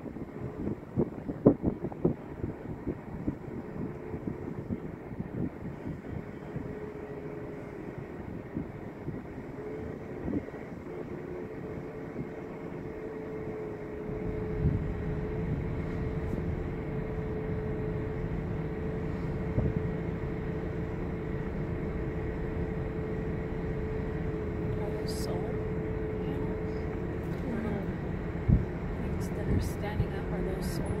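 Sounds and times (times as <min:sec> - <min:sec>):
car hum: 0:00.0 - 0:31.0
road and tyre rumble: 0:00.0 - 0:31.0.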